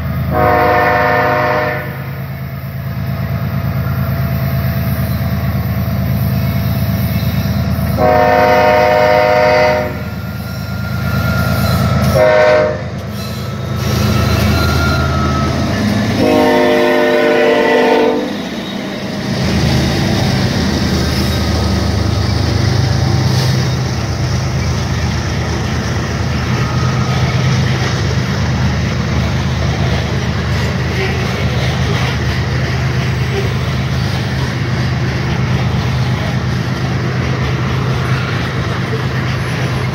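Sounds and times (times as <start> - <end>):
train wheels on rails: 0.0 - 39.9
locomotive air horn: 0.3 - 2.2, 7.9 - 18.4.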